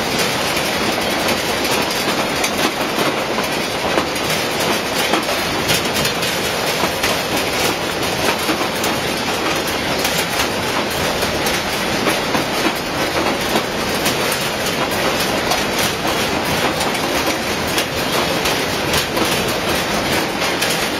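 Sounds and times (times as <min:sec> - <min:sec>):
conveyor clattering: 0:00.0 - 0:20.9.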